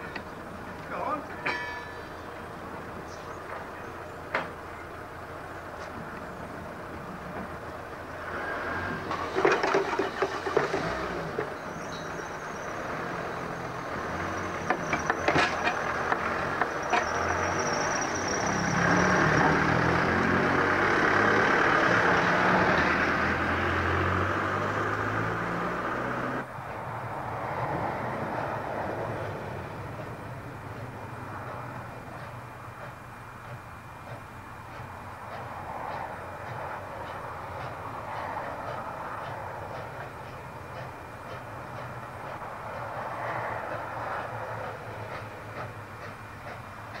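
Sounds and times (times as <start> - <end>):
engine running: 2.3 - 26.9.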